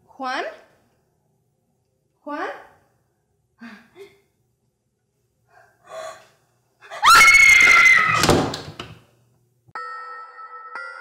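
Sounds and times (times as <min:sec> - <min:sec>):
woman screaming: 0:06.9 - 0:08.2.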